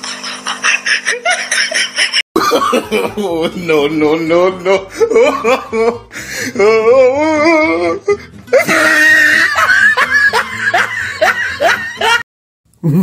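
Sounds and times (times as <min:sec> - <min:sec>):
woman laughing hard: 0:00.0 - 0:03.4, 0:04.7 - 0:06.1, 0:08.5 - 0:12.2.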